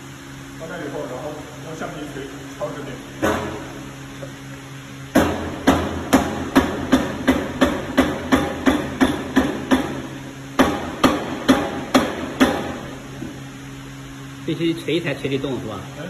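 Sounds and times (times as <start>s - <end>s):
rubber mallet striking metal: 5.1s - 12.9s.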